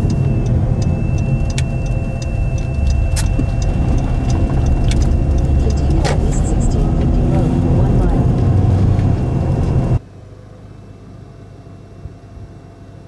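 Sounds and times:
sharp ticks: 0.0 - 9.8
engine and tyre rumble: 0.0 - 11.3
faint high whine: 0.0 - 12.2.

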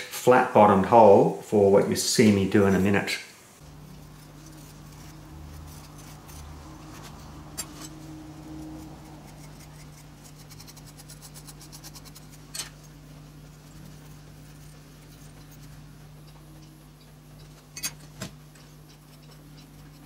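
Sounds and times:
steady low hum: 0.0 - 20.0
metal spoon scraping sand: 3.7 - 15.7.

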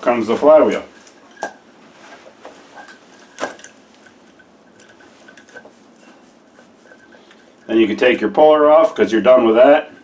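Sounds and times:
sharp metal clink: 2.8 - 5.5.

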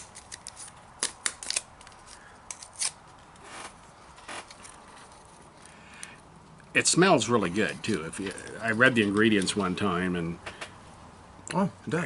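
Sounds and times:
paper packets torn open: 0.0 - 4.7.

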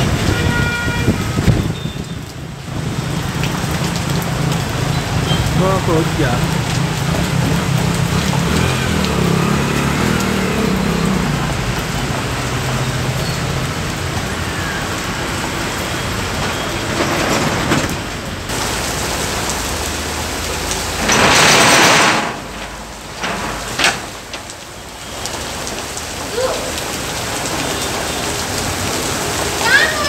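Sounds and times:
heavy rain on street and cars: 0.0 - 30.0
traffic on wet road: 0.0 - 30.0
engine hum: 2.7 - 26.2.

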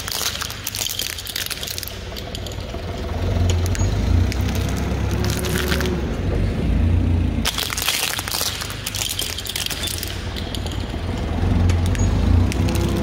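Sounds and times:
plastic cubes cracking and crunching: 0.0 - 6.1, 7.4 - 13.0
forklift engine running: 1.9 - 7.5, 10.2 - 13.0.

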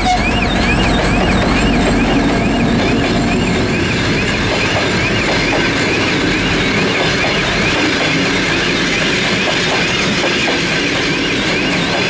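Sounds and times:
high wavering tone: 0.0 - 10.1
low rumble of train: 0.0 - 12.0
train wheels clattering over rail joints: 0.2 - 12.0.

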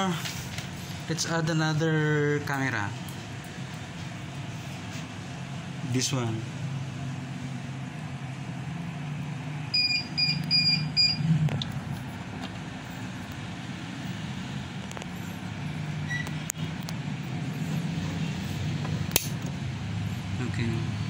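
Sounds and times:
steady low hum: 0.0 - 21.0
quick electronic beeps: 9.8 - 11.3.

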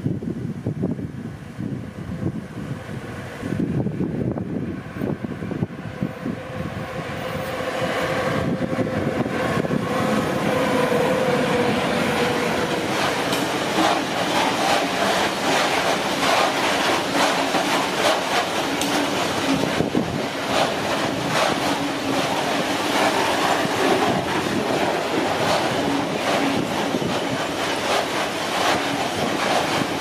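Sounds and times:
electric locomotive humming: 0.0 - 30.0
freight wagons rumbling past: 7.1 - 30.0
wheels clicking over rails: 7.4 - 30.0.

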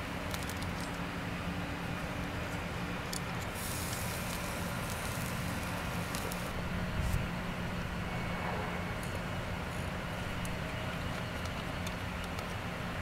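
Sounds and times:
charcoal fire crackling: 0.0 - 7.8
steady low hum: 0.0 - 13.0.

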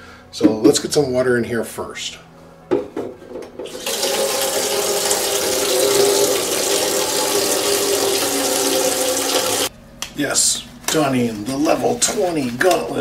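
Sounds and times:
faucet running into plastic container: 3.6 - 9.7.

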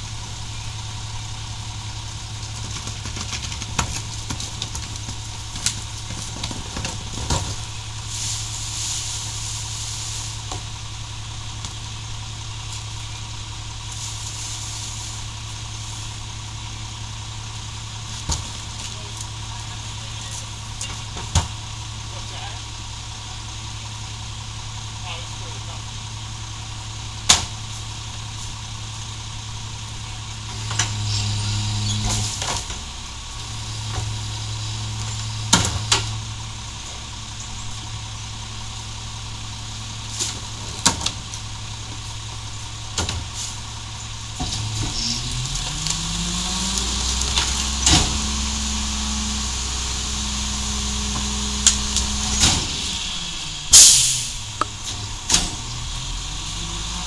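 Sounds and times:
garbage truck diesel engine: 0.0 - 57.0
trash carts banging on hopper: 30.4 - 33.0, 33.7 - 36.2, 40.1 - 42.1, 42.8 - 43.6, 44.3 - 57.0
loud clattering burst: 51.4 - 55.7.

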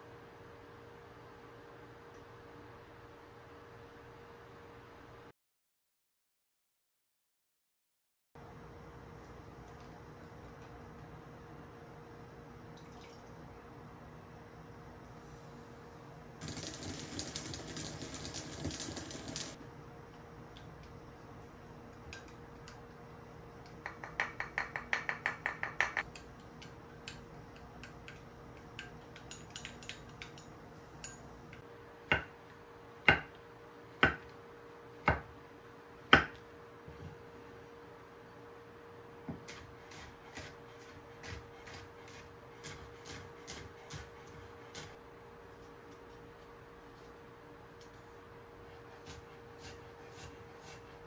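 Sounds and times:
knife chopping on wooden board: 33.0 - 33.4, 34.0 - 34.3, 35.0 - 35.3, 36.1 - 36.4, 39.3 - 45.0.

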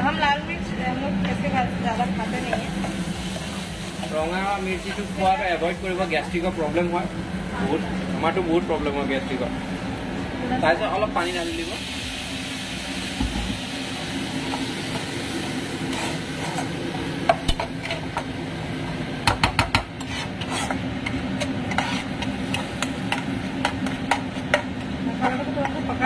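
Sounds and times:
food sizzling: 0.0 - 26.0
metal spatula scraping a pan: 15.9 - 16.8, 20.0 - 23.2
spatula knocking against pan: 19.2 - 19.9.

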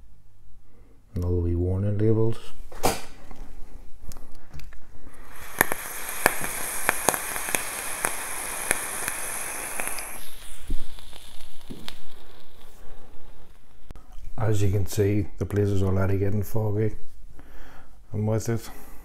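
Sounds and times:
vape coil hissing and crackling: 5.1 - 14.0
breathy exhale: 12.6 - 13.6, 17.4 - 18.0.

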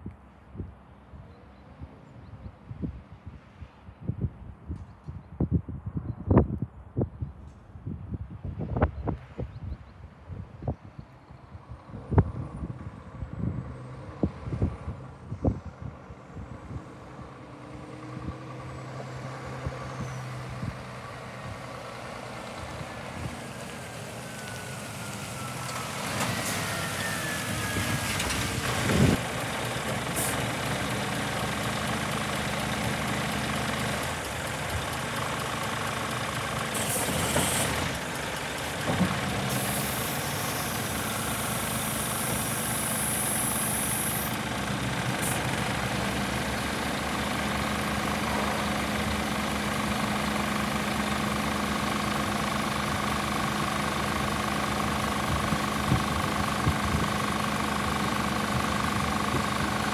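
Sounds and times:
diesel truck engine: 11.3 - 59.9.

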